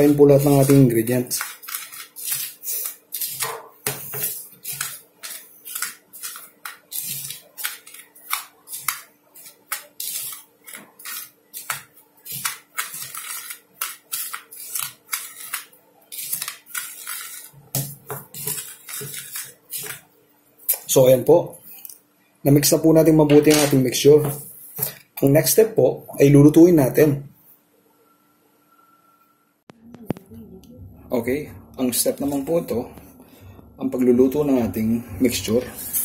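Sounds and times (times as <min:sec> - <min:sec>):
rod scraping plastic cup: 0:00.0 - 0:17.6, 0:18.3 - 0:20.0.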